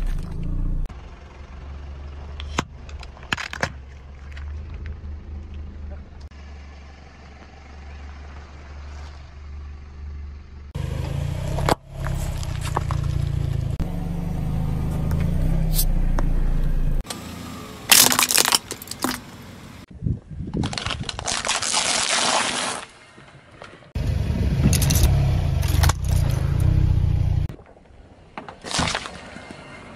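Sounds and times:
low engine rumble: 0.0 - 18.0, 24.0 - 27.5.

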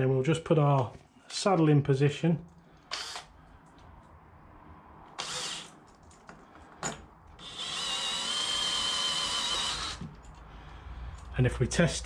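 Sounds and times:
electric drill whining: 2.9 - 3.3, 5.2 - 5.8, 7.4 - 10.2.

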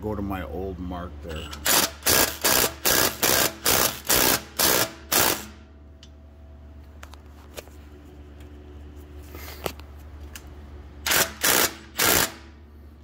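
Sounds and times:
impact wrench bursts: 1.5 - 5.7, 11.0 - 12.6.

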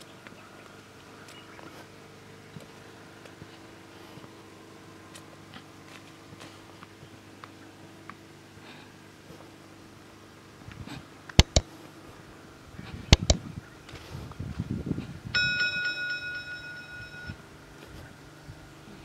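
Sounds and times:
footsteps rustling: 0.0 - 8.2, 9.2 - 9.8, 10.5 - 15.2, 16.0 - 18.3
generator humming: 0.0 - 19.0
mouse clicks: 11.4 - 11.6, 13.1 - 13.4
bell-like notification ding: 15.4 - 17.4.

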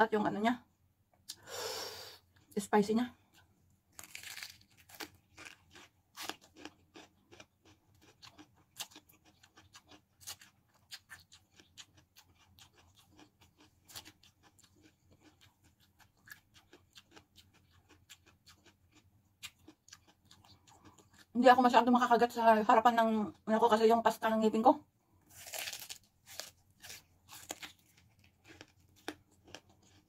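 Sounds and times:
crunching while chewing: 3.3 - 21.3, 25.2 - 30.0.

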